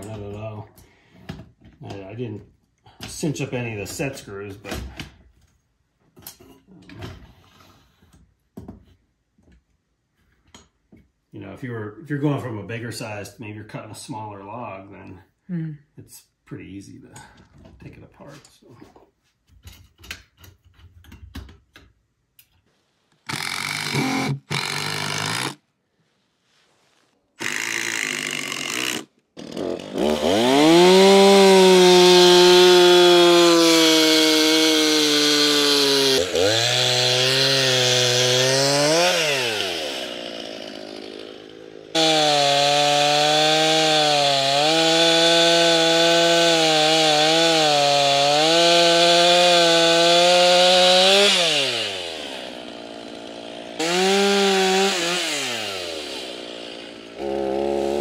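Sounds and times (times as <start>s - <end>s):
chainsaw cutting through log: 23.2s - 25.6s, 27.4s - 58.0s.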